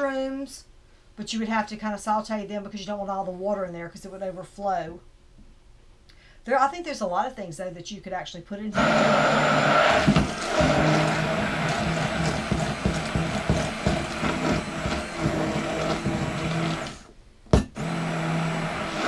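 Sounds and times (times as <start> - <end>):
immersion blender motor humming: 8.8 - 17.1, 17.8 - 19.0.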